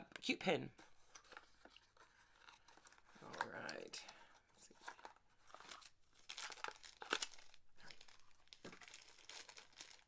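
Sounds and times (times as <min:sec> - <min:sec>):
packaging crinkling and tearing: 0:05.5 - 0:10.0.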